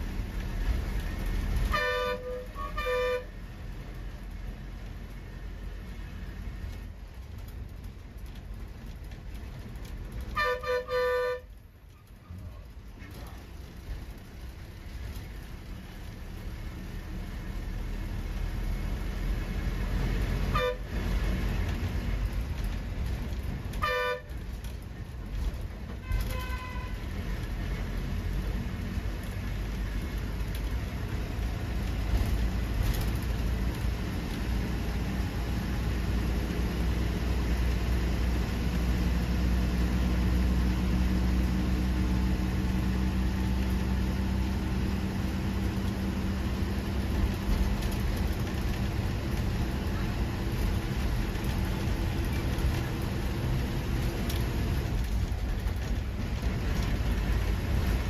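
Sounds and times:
bus engine rumble: 0:00.0 - 0:58.0
vehicle horn tooting: 0:01.6 - 0:03.3, 0:10.3 - 0:11.5, 0:20.5 - 0:20.9, 0:23.8 - 0:24.4, 0:26.0 - 0:27.0.

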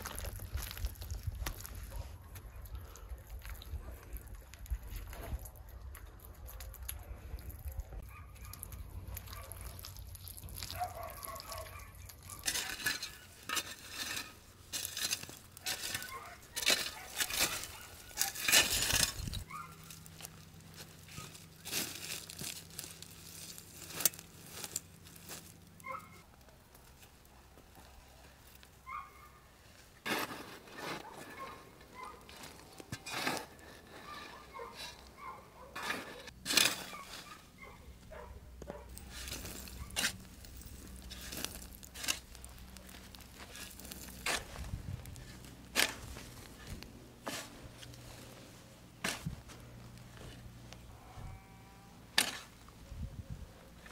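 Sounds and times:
wire basket set on coals: 0:07.6 - 0:50.9
spade cutting into soil: 0:12.4 - 0:19.4, 0:30.0 - 0:31.5, 0:32.3 - 0:35.1, 0:35.8 - 0:37.4, 0:39.0 - 0:48.0, 0:49.0 - 0:49.5, 0:52.2 - 0:52.6.

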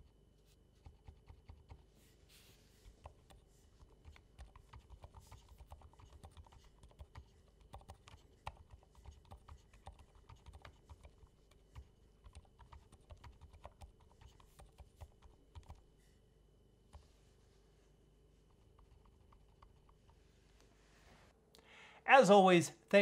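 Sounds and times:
mechanical keyboard typing: 0:00.8 - 0:01.8, 0:03.0 - 0:15.8.

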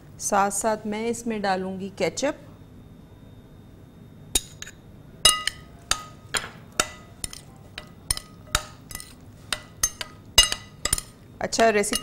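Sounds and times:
metal spoon clinking glass bowl: 0:05.3 - 0:12.0.

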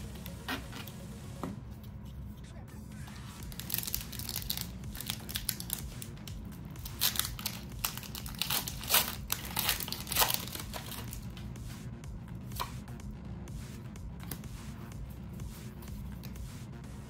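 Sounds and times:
foil wrapper crinkling and tearing: 0:03.5 - 0:06.1, 0:06.8 - 0:11.2.

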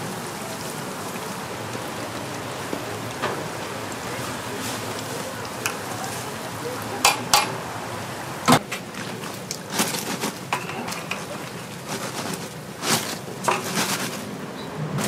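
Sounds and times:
steady hiss: 0:00.0 - 0:15.0
utensils clattering on hard surfaces: 0:09.1 - 0:14.2.

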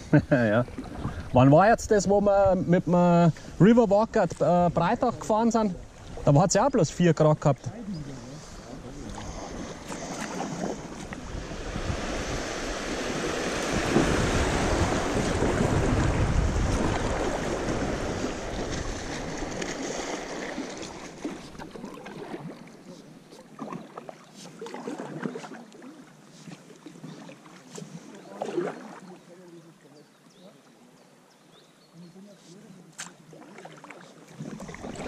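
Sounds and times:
paddle strokes splashing: 0:00.6 - 0:01.4, 0:04.3 - 0:06.8, 0:07.4 - 0:29.7, 0:32.4 - 0:35.0
river water rushing: 0:08.0 - 0:25.4.

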